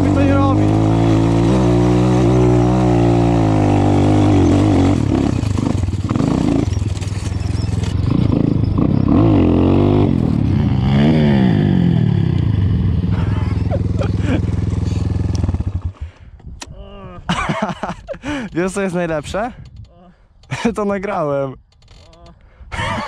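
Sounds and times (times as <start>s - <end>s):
dirt bike engine revving: 0.0s - 16.1s.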